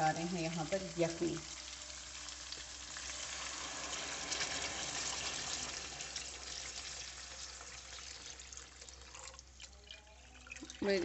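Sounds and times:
stock sizzling in hot fat: 0.0 - 9.6
liquid splashing from a pour: 2.9 - 11.0.

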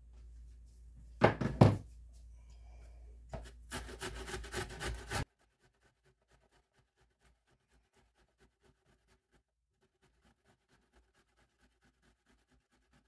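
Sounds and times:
zucchini rasping on metal grater: 3.7 - 13.0.

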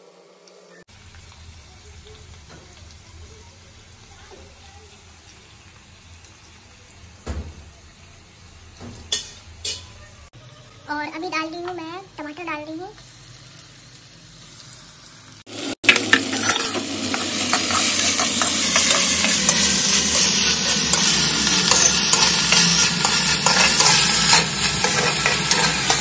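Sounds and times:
vegetables sizzling in oil: 0.0 - 26.0
ladle scraping pot: 20.9 - 26.0.

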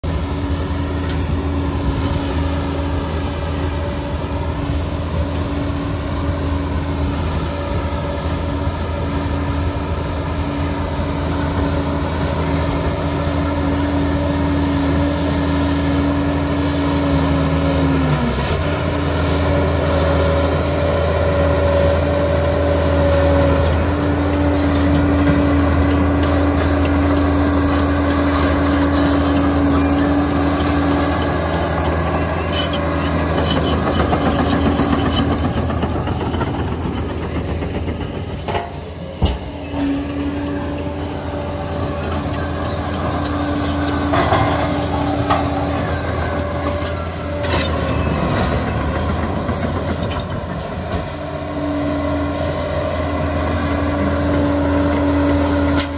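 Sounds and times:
bulldozer diesel engine running: 0.0 - 55.9
engine whine: 0.0 - 55.9.

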